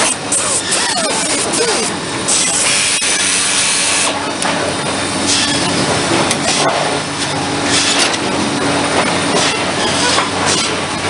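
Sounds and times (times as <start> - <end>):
machinery hum: 0.0 - 11.0
rough sawing noise: 5.2 - 10.9.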